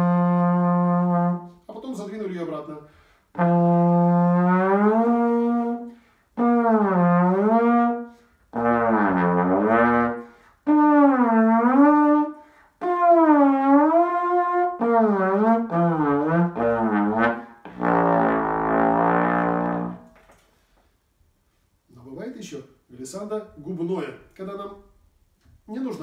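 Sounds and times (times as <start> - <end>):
trombone glissando notes: 12.8 - 20.2.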